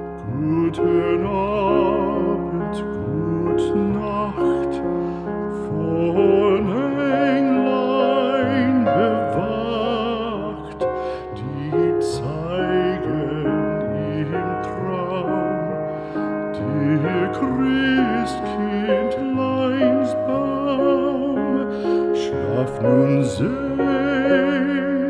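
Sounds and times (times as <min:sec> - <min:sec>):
slow background music: 0:00.0 - 0:25.0
voice singing with vibrato: 0:16.6 - 0:25.0.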